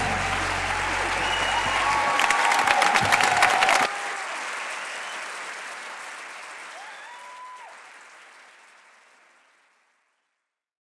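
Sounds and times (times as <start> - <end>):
music: 0.0 - 2.2
audience applause: 0.0 - 10.3
whistle: 1.1 - 2.3, 4.6 - 5.3.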